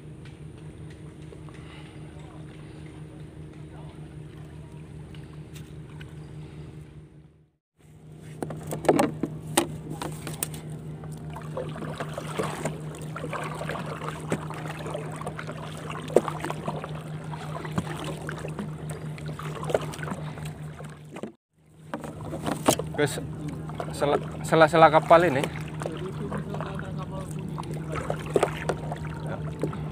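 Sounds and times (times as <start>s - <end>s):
boat motor droning: 0.0s - 29.9s
water slapping along hull: 8.3s - 29.9s
knocks on boat: 8.4s - 10.4s, 21.0s - 24.3s.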